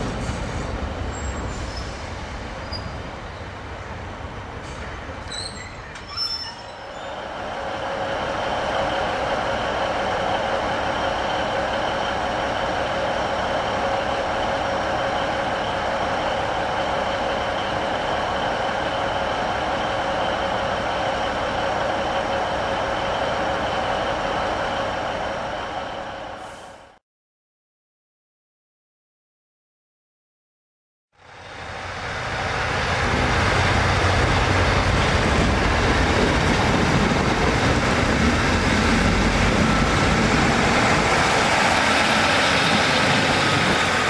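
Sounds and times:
high brake squeals: 1.1 - 3.5, 4.7 - 7.2.

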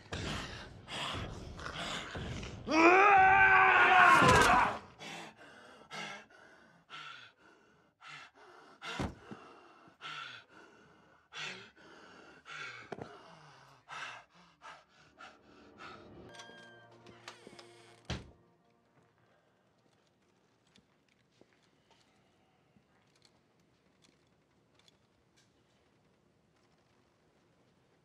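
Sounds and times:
man panting heavily: 4.9 - 16.3.

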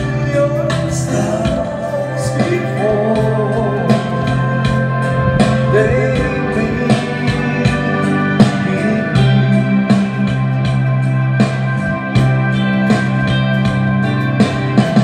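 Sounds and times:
man singing into microphone: 0.0 - 10.9
backing track with steady beat: 0.0 - 15.0.

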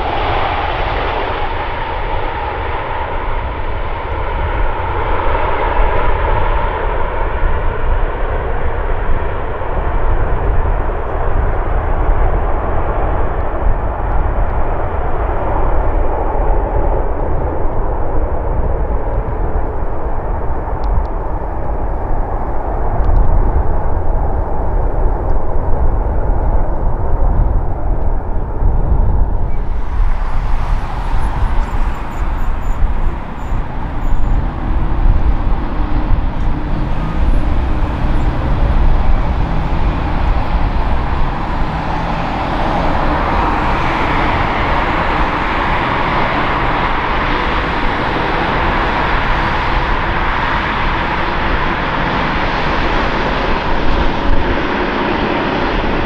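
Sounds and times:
taxiing jet rushing whine: 0.0 - 13.3, 29.2 - 56.0
jet engine deep rumble: 0.0 - 56.0.

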